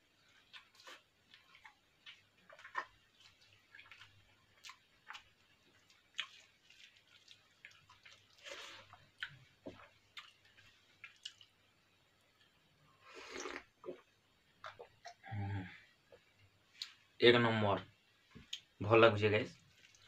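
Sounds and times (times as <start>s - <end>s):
wet chewing and squishing: 0.2s - 11.5s, 19.7s - 20.0s.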